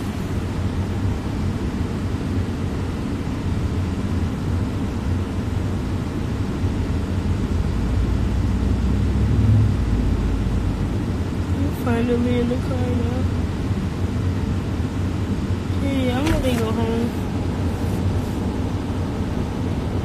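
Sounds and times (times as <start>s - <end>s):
car cabin rumble: 6.5s - 20.0s.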